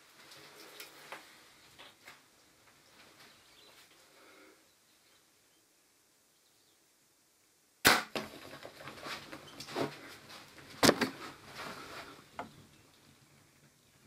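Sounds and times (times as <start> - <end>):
sharp crack of bow shot: 7.8 - 8.4.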